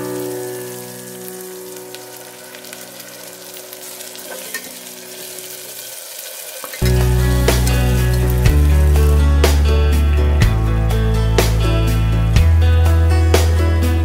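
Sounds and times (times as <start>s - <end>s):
onions sizzling in a pot: 0.0s - 9.8s
loud background music: 6.8s - 14.0s.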